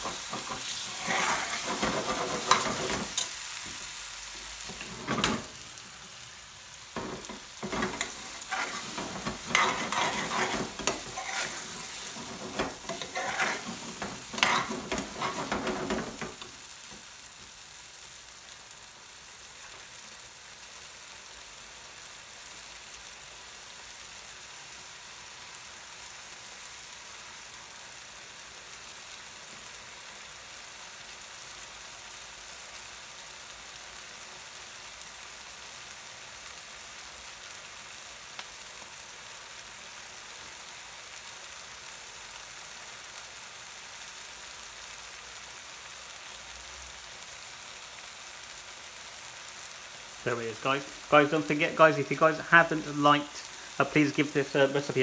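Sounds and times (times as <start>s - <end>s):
metal spoon scraping frying pan: 0.0s - 3.4s, 4.7s - 5.5s, 7.0s - 16.4s
curry sizzling: 0.0s - 55.0s.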